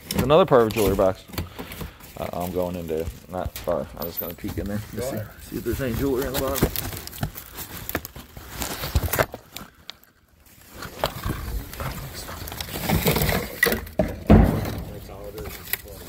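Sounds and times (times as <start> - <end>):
items knocking and shifting: 0.0 - 9.8, 10.7 - 16.0
plastic bags rustling: 0.0 - 14.0, 14.8 - 16.0
loud thump: 14.0 - 14.9.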